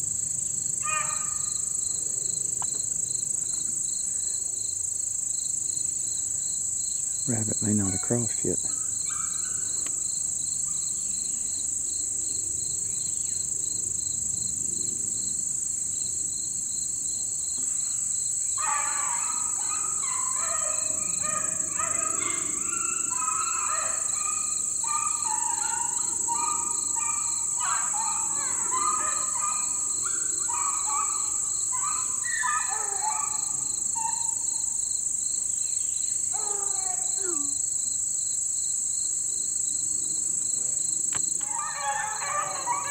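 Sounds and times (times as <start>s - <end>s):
cricket chirping: 0.0s - 42.9s
insects chorus: 0.0s - 42.9s
dogs baying: 18.6s - 34.5s, 41.4s - 42.9s
dog howling: 30.5s - 33.6s, 36.4s - 37.5s, 41.4s - 42.9s.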